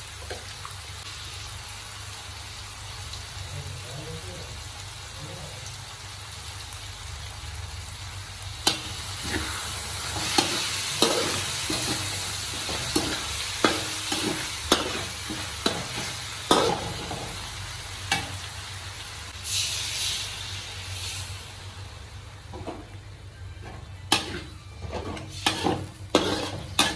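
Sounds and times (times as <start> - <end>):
meat sizzling in a wok: 0.0 - 26.9
metal spatula scraping a pan: 8.7 - 17.2, 23.6 - 26.9.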